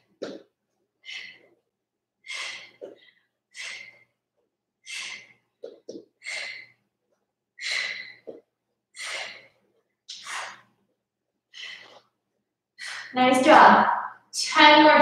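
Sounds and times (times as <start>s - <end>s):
woman breathing hard: 1.0s - 1.6s, 2.2s - 4.2s, 4.8s - 6.9s, 7.6s - 10.8s, 11.5s - 12.2s, 12.8s - 13.2s.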